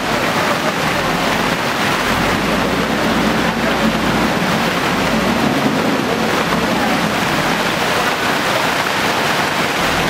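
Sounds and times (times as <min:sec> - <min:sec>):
floodwater rushing: 0:00.0 - 0:10.0
rain falling: 0:00.0 - 0:10.0.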